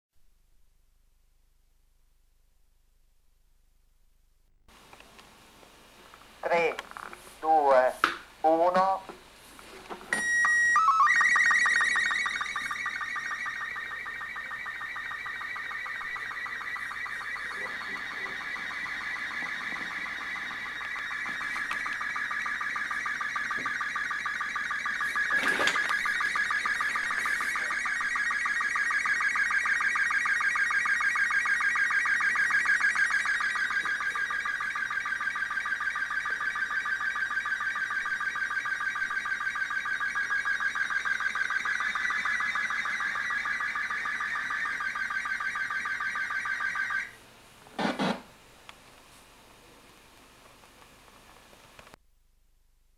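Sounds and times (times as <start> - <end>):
steady tone: 10.1 - 28.5
warbling screech of shifting tones: 10.8 - 24.4.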